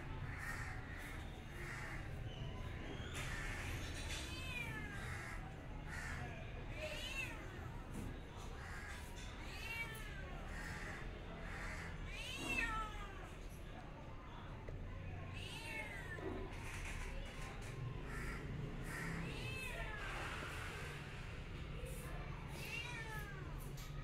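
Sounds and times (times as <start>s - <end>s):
cat meowing: 4.1s - 5.5s, 6.7s - 7.8s, 8.6s - 13.5s, 15.2s - 16.6s, 18.2s - 20.4s, 22.5s - 24.0s
faint hoarse calls: 16.5s - 19.4s.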